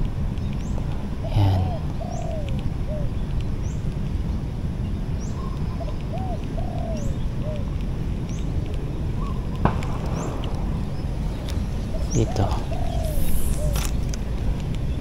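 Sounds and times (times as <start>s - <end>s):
low rumble: 0.0s - 15.0s
bird chirping: 0.4s - 7.7s, 8.3s - 15.0s
doves cooing: 0.8s - 3.2s, 5.4s - 7.7s, 9.1s - 14.0s.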